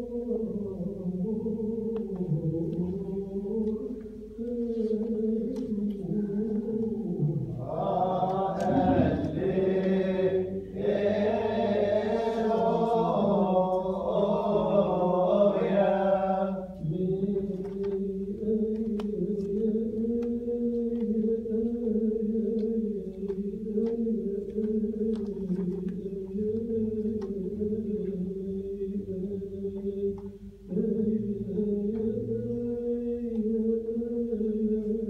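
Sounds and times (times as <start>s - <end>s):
voices chanting a drone: 7.0s - 16.8s.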